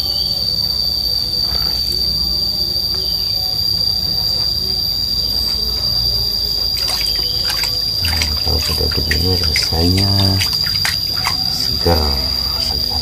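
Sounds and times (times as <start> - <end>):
high-pitched insect drone: 0.0 - 13.0
water splashing in basin: 6.6 - 13.0.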